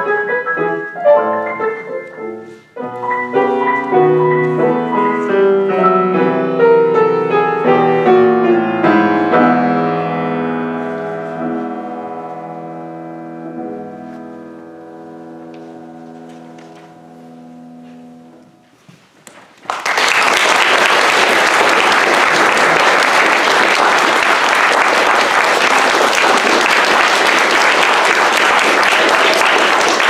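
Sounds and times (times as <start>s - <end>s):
piano chord ringing: 0.3s - 18.8s
audience applause: 19.6s - 30.0s.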